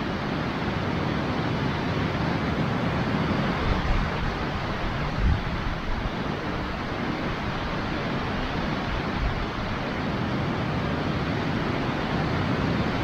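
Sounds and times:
wind buffeting microphone: 3.0s - 10.2s.

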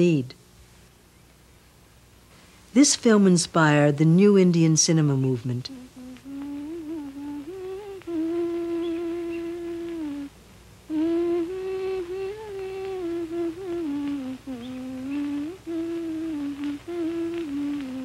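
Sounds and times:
person humming a melody: 5.2s - 18.0s.

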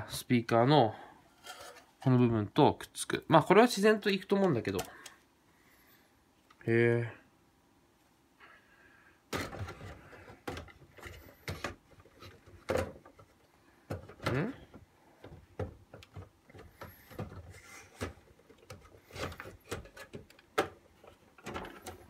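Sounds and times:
plastic clicks knocks and scrapes: 15.2s - 22.0s.

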